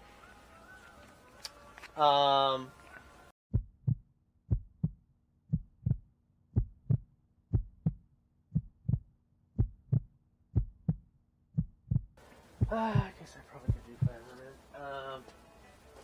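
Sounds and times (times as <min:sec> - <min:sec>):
heartbeat thumps: 0:03.5 - 0:14.3.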